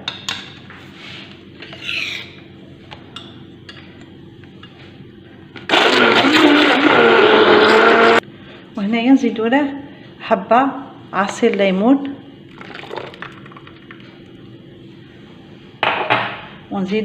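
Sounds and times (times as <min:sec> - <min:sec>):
stick blender running: 0:05.7 - 0:08.2.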